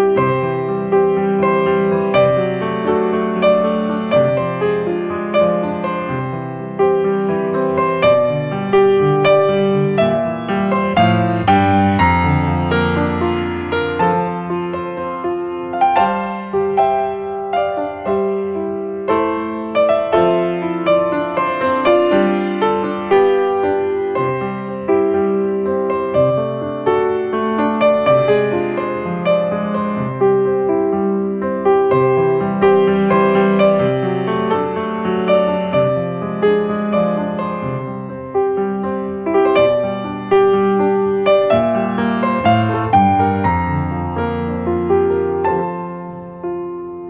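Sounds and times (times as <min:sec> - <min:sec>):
gentle piano music: 0:00.0 - 0:47.0.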